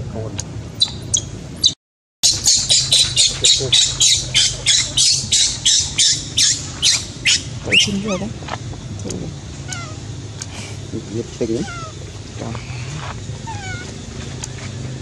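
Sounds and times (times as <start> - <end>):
baby monkey screaming: 0.8 - 8.4, 9.6 - 10.1, 11.4 - 14.0.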